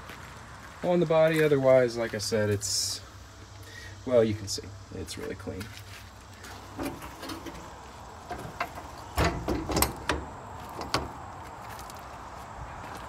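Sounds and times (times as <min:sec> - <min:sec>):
metal door clanking shut: 0:06.7 - 0:11.2.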